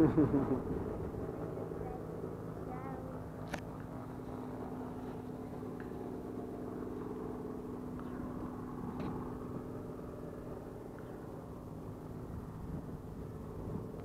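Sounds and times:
distant helicopter drone: 0.0 - 14.0.

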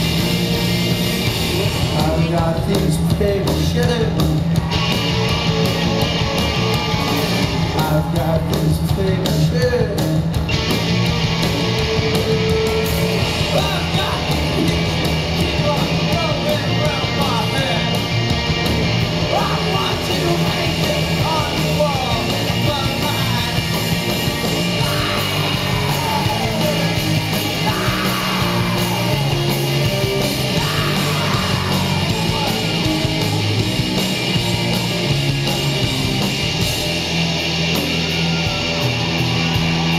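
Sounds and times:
bass guitar: 0.0 - 39.9
distorted electric guitars: 0.0 - 39.9
drums: 0.0 - 39.9
shouted vocals: 12.2 - 18.0, 19.3 - 33.6.

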